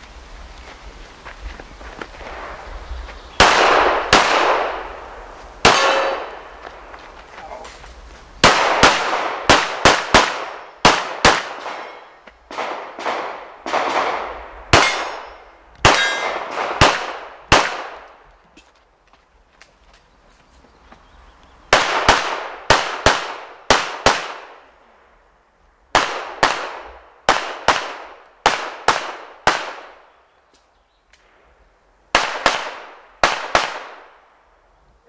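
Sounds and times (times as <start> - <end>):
pistol shots echoing: 3.4 - 5.0, 5.6 - 6.6, 8.4 - 18.1, 21.7 - 24.6, 32.1 - 34.2.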